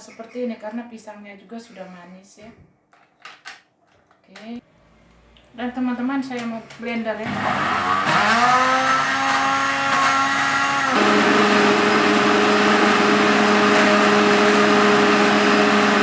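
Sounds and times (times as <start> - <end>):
blender running: 7.2 - 16.0.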